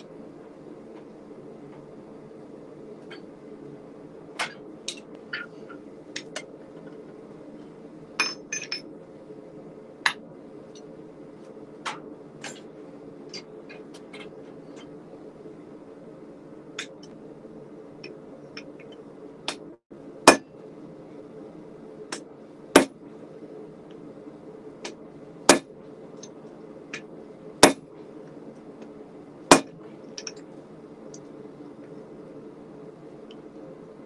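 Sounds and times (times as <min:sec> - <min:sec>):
forge burner hissing: 0:00.0 - 0:34.0
hammer striking steel on anvil: 0:20.3 - 0:20.5, 0:25.5 - 0:25.7, 0:27.6 - 0:27.8, 0:29.5 - 0:30.3.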